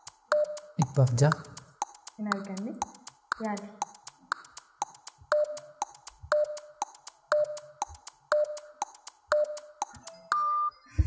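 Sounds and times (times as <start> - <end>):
clock-like ticks: 0.0 - 10.7
short beeps: 9.4 - 10.9.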